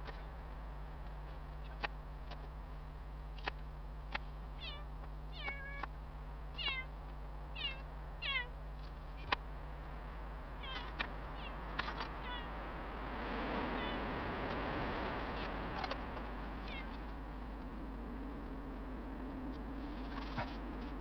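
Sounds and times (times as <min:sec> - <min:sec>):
cat meowing: 0:04.6 - 0:05.8, 0:06.6 - 0:06.9, 0:07.6 - 0:08.5, 0:10.6 - 0:11.6, 0:12.2 - 0:12.5, 0:16.6 - 0:17.0.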